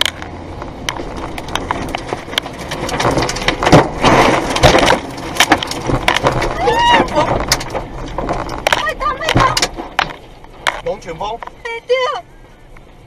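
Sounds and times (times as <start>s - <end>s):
rain and debris knocking on car: 0.0s - 11.8s.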